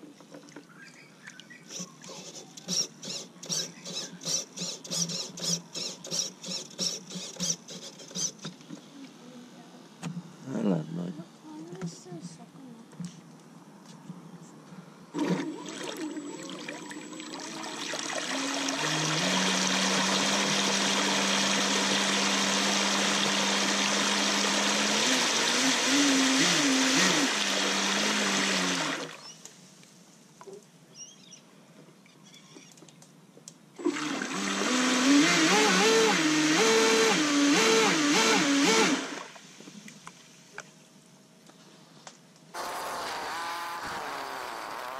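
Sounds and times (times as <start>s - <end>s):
electric motor whine: 42.6s - 44.9s.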